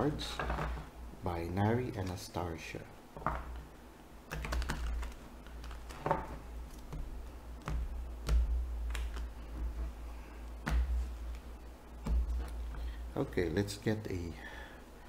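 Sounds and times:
cards being shuffled: 4.3 - 12.9.

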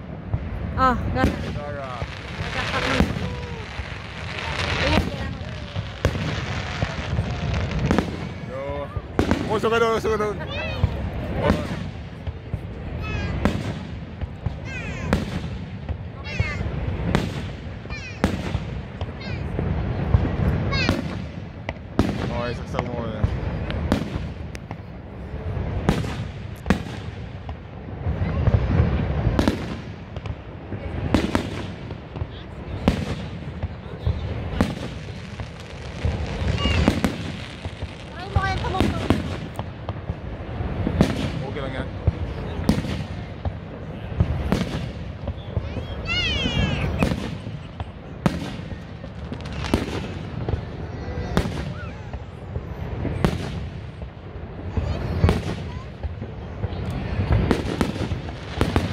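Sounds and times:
steady low rumble: 0.0 - 22.3
fireworks bursting with sharp bangs: 0.0 - 58.9.

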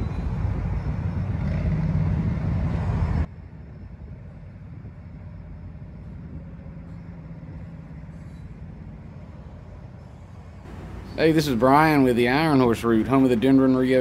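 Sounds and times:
diesel locomotive engines rumbling: 0.0 - 14.0
train rolling past: 4.4 - 14.0.

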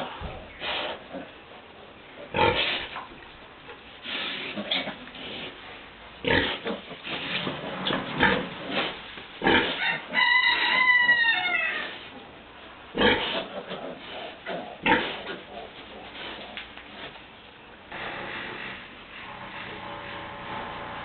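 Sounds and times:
pigs grunting: 2.2 - 3.0, 6.2 - 10.0, 13.0 - 16.6.

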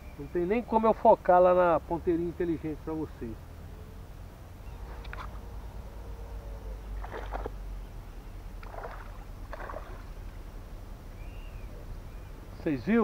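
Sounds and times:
fish splashing in water: 6.9 - 7.6, 8.6 - 10.3.

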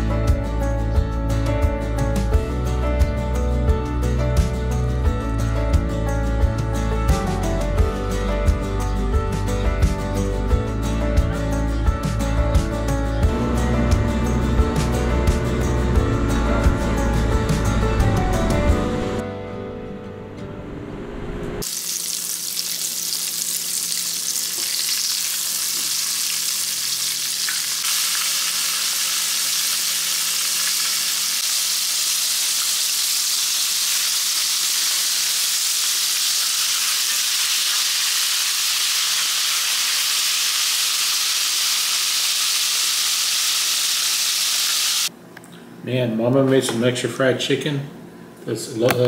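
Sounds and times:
food deep-frying in oil: 21.6 - 45.1.

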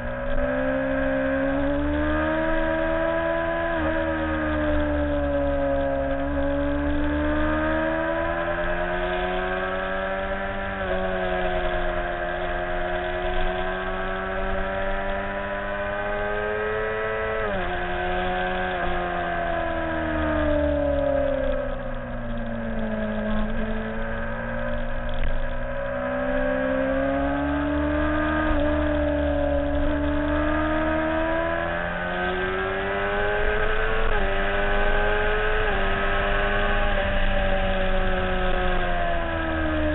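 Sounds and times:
motorcycle engine revving through gears: 0.0 - 39.9.

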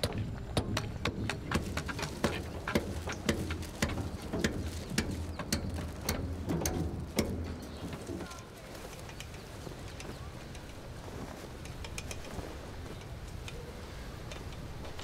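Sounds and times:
hand tools knocking and tapping: 0.0 - 9.4.

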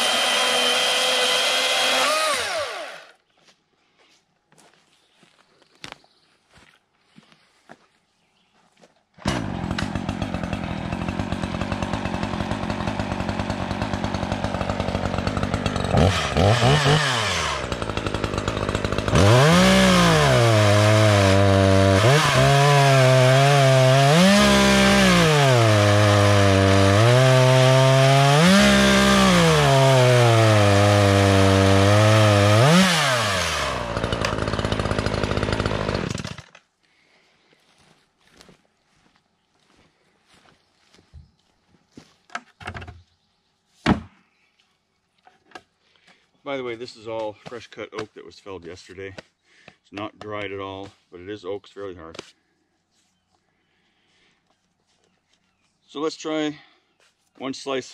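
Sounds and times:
chainsaw cutting a log: 0.0 - 3.2, 9.2 - 36.6.

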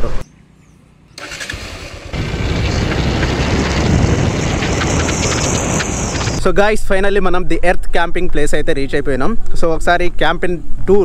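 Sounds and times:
motorcycle engine running: 0.3 - 6.4
wind noise: 1.2 - 6.5.

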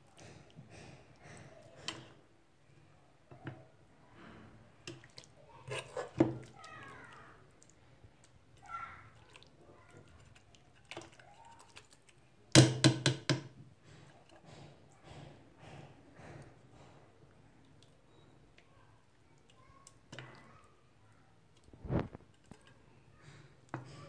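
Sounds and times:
tongs and ladle knocking pot: 12.6 - 16.4.

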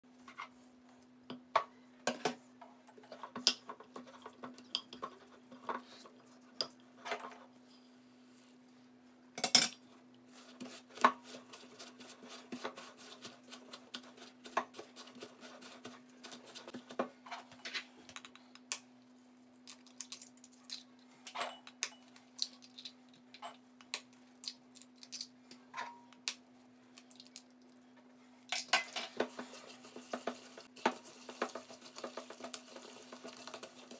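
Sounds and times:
utensils scraping metal bowl: 29.1 - 33.9.

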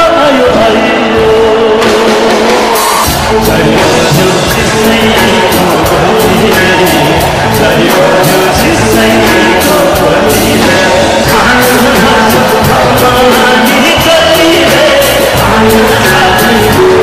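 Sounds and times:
man singing: 0.0 - 17.0
rock band playing: 0.0 - 17.0.

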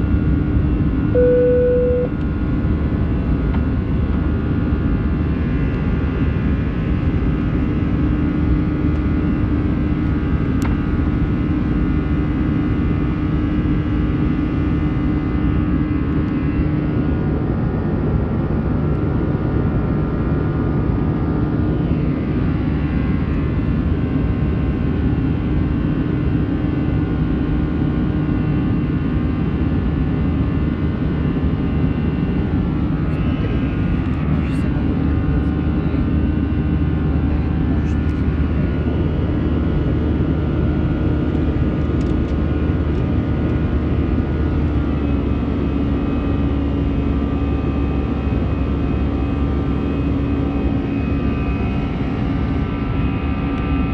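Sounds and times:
jet engines rumbling in cabin: 0.0 - 53.9
engine whining tones: 1.2 - 2.2.

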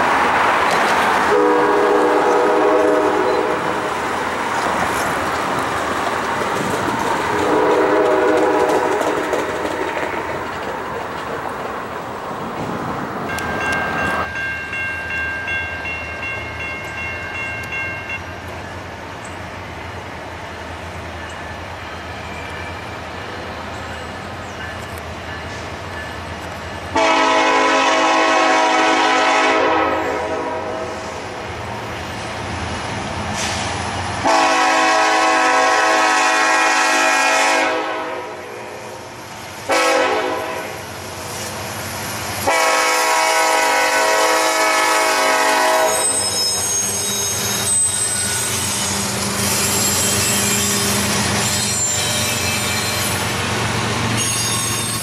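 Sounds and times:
locomotive horn blasts: 1.3 - 3.7, 7.4 - 9.1, 26.9 - 31.0, 34.2 - 38.6, 39.7 - 40.9, 42.4 - 47.0.

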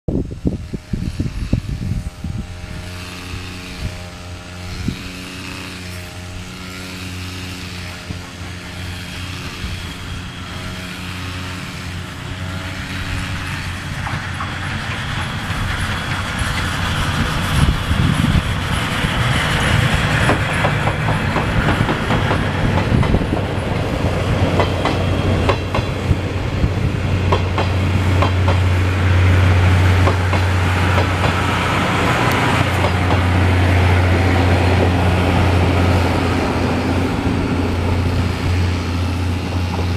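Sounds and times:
brush cutter engine: 0.2 - 39.9
steam train rumbling past: 0.3 - 39.9
train wheels clicking over rail joints: 2.8 - 39.9.

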